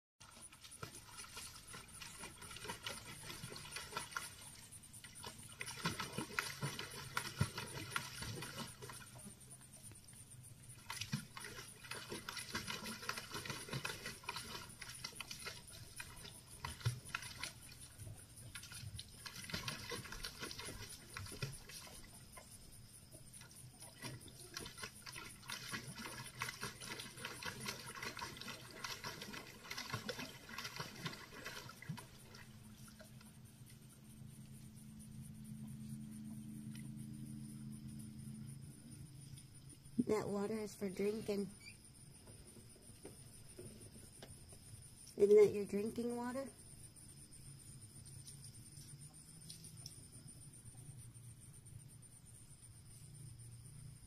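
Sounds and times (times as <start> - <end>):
dog lapping water: 0.2 - 9.4, 10.7 - 22.5, 23.4 - 33.2.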